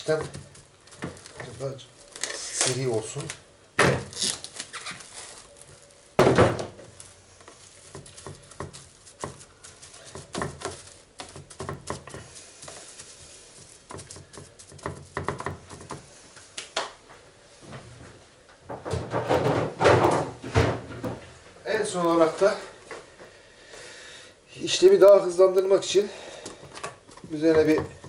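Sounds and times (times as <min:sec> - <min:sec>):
plastic film crinkling: 0:00.0 - 0:06.2, 0:06.8 - 0:15.2.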